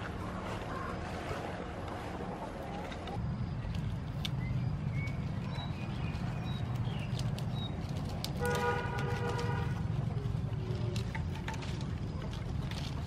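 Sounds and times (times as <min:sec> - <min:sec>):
leaves rustling and snapping: 0:03.6 - 0:13.0.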